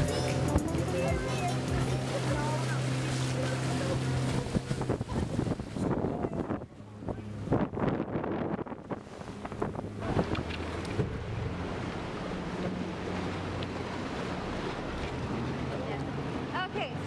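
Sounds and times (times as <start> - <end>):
boat motor humming: 0.0 - 17.0
water splashing against hull: 0.0 - 17.0
wind buffeting microphone: 4.0 - 11.4.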